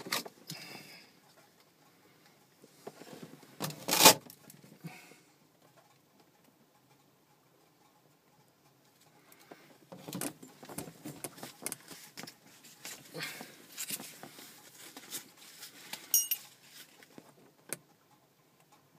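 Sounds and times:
rustling and knocks of handling: 0:02.7 - 0:04.7, 0:09.0 - 0:17.9.

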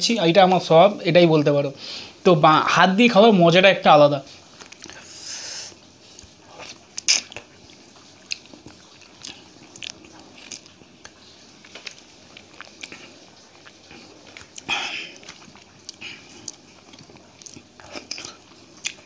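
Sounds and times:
person chewing crunchy food: 0:04.4 - 0:19.0.

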